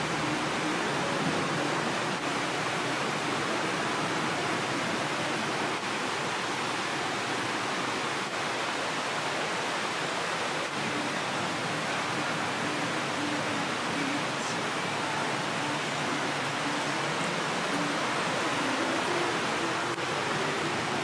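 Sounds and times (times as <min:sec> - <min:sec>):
rushing stream water: 0:00.0 - 0:21.0.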